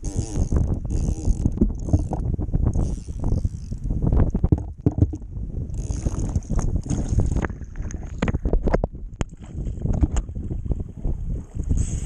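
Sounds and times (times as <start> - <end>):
wind buffeting microphone: 0.0 - 12.0
hand knocking and rubbing camera: 4.3 - 5.3
waves splashing on kayak hull: 4.4 - 11.8.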